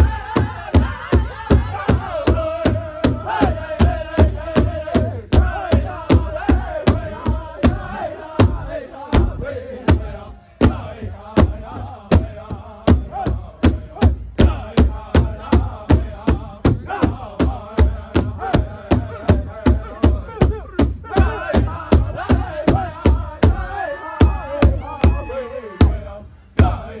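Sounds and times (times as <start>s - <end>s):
large hand drum beats: 0.0s - 26.8s
group of high voices singing: 0.0s - 27.0s.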